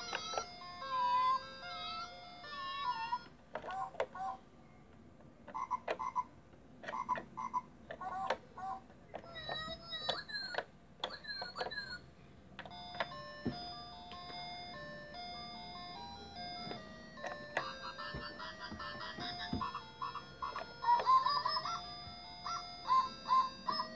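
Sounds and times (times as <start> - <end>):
toy button clicks: 5.5 - 8.4, 9.1 - 12.0
electronic toy sound effects: 5.5 - 12.0, 16.6 - 23.9.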